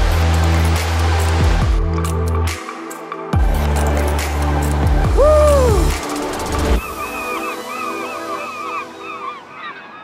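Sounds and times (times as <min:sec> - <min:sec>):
electronic music with heavy bass: 0:03.4 - 0:06.0.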